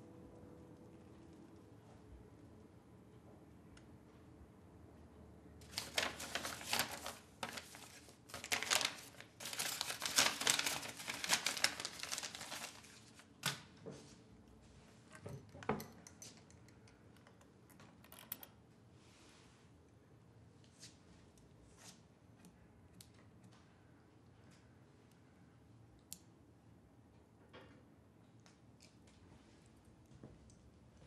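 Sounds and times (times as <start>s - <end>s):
paper rustling and crinkling: 5.6s - 13.6s.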